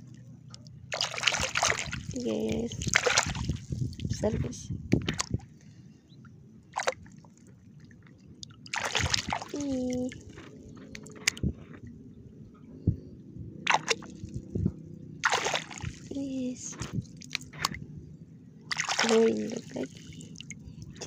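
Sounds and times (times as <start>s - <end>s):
hand splashing in shallow water: 0.9s - 4.0s, 8.7s - 9.9s, 13.7s - 14.2s, 15.2s - 16.1s, 18.7s - 20.2s.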